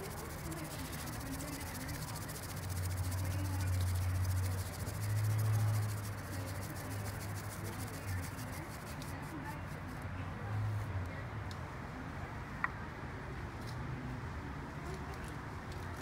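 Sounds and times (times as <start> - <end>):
tea whisk brushing in bowl: 0.0 - 10.0.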